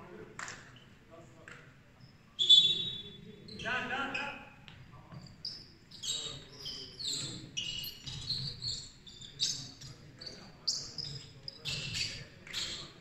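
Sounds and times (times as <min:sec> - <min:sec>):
shoes squeaking on hardwood: 0:04.7 - 0:13.0.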